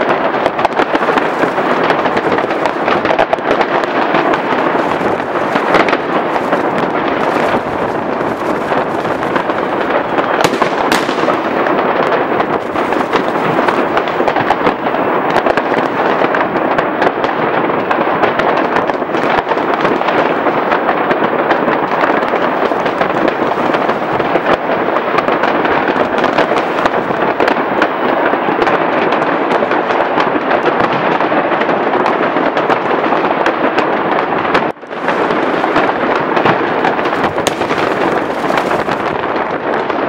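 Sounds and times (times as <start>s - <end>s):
firecrackers cracking: 0.0s - 40.0s
fireworks bursting: 0.0s - 40.0s.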